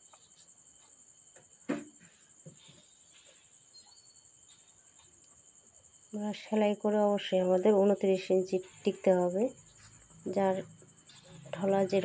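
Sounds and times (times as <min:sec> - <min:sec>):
cricket chirring: 0:00.0 - 0:12.0.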